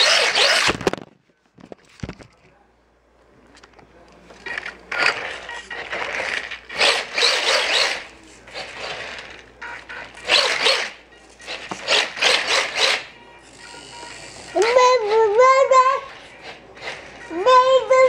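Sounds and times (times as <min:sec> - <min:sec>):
toy truck electric motor whirring: 0:00.0 - 0:00.9, 0:05.0 - 0:18.0.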